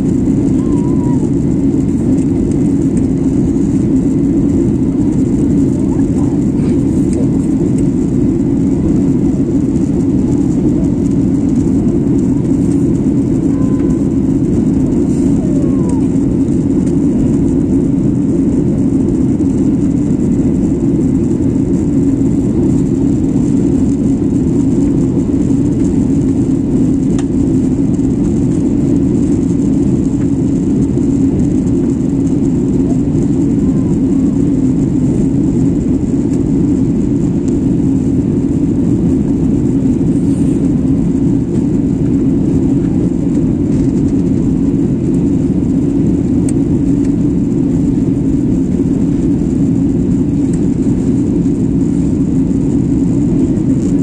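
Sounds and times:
jet cabin engine drone: 0.0 - 54.0.

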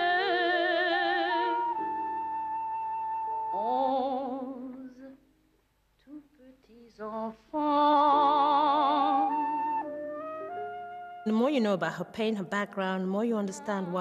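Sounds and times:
woman singing with vibrato: 0.0 - 2.4, 3.4 - 5.3, 6.0 - 9.9, 11.3 - 14.0.

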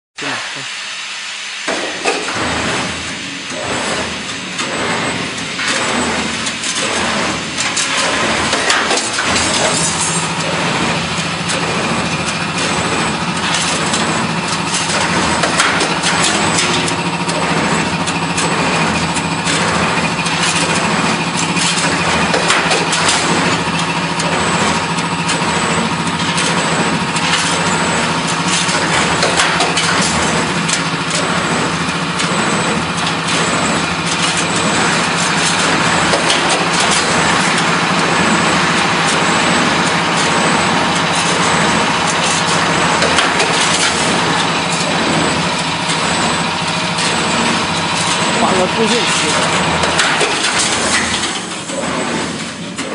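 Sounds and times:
machine motor hum: 0.2 - 52.9
machine clicks and clatter: 1.7 - 52.9.

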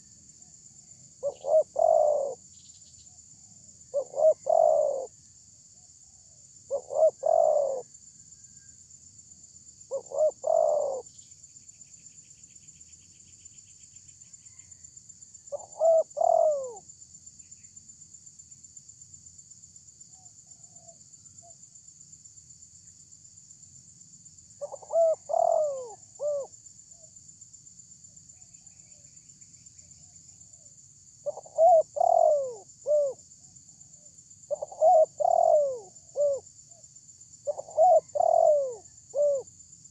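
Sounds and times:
dove cooing: 1.2 - 2.4, 3.9 - 5.1, 6.7 - 7.9, 9.9 - 11.1, 15.5 - 16.8, 24.6 - 26.5, 30.6 - 33.2, 34.5 - 36.5, 37.4 - 39.5.

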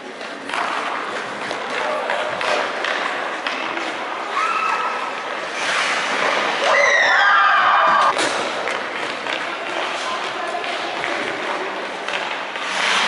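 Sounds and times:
skate blades scraping ice: 0.0 - 6.9, 8.0 - 13.0
stick hitting puck: 0.1 - 4.1, 8.1 - 13.0.

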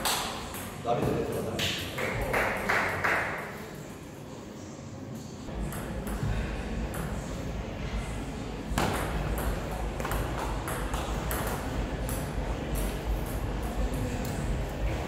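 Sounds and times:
table tennis ball hits: 8.8 - 13.0.

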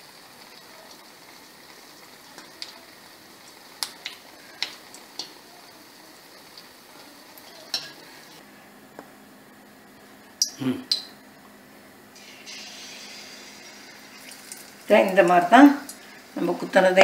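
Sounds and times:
batter sizzling in hot oil: 0.0 - 8.4, 12.2 - 17.0.

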